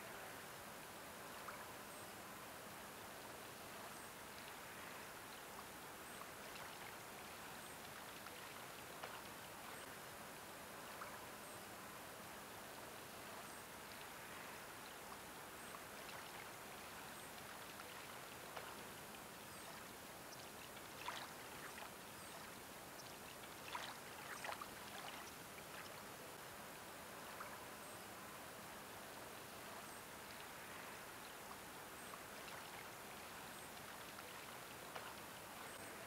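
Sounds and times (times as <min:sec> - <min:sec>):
water gently lapping: 0:03.1 - 0:10.0, 0:12.6 - 0:36.0
small water splashes: 0:06.1 - 0:09.9, 0:15.0 - 0:26.1, 0:31.5 - 0:36.0.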